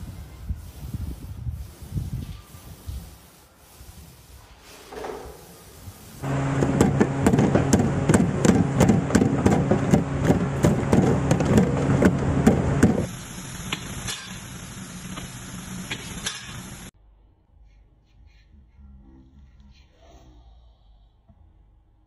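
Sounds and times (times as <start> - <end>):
machine humming: 6.2 - 16.9.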